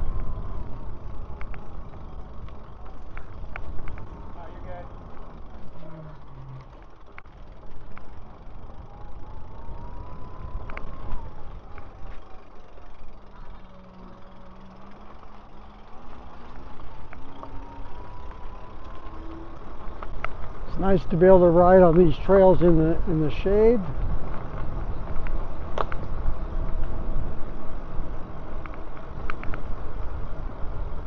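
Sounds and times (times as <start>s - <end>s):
electric motor whine: 0.0s - 21.3s
bike clicks and rattles: 0.0s - 31.0s
wind and tyre rumble: 0.0s - 31.0s.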